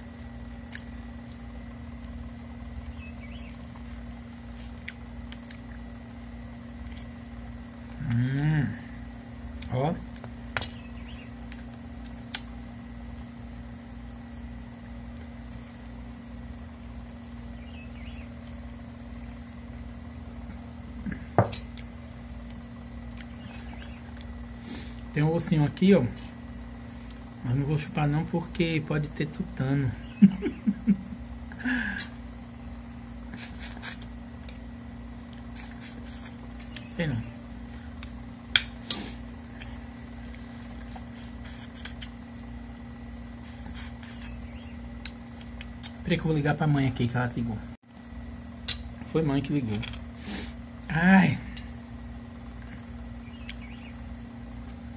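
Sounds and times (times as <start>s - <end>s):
steady low hum: 0.0s - 54.9s
person chewing crisp food: 0.6s - 7.6s, 21.5s - 25.1s, 37.6s - 46.0s.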